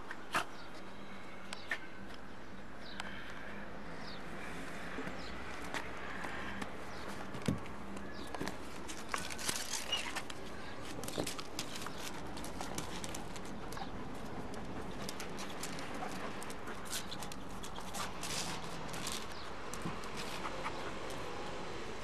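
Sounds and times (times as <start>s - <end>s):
rustling: 7.0s - 21.4s.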